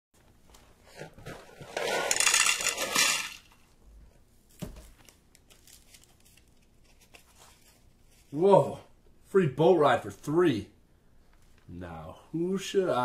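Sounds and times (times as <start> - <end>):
cereal pouring into bowl: 1.7 - 3.5.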